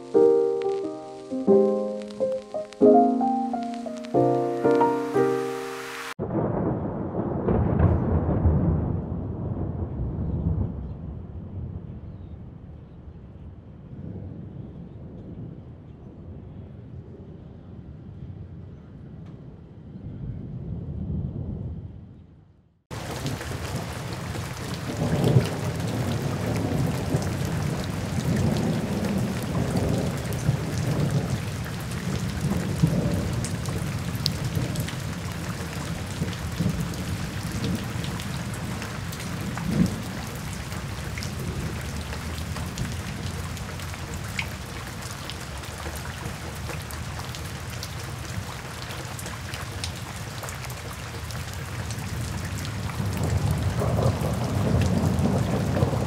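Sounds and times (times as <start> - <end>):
steady rain falling: 0.0 - 10.1, 22.9 - 56.0.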